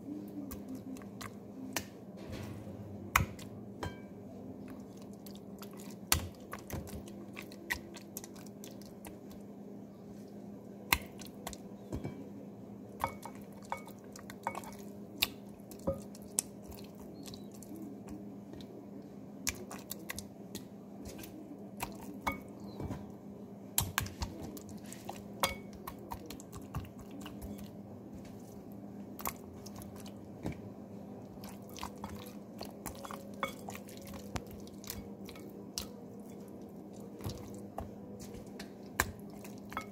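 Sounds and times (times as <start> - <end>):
meat tapping metal bowl: 13.0 - 16.2, 25.4 - 27.6.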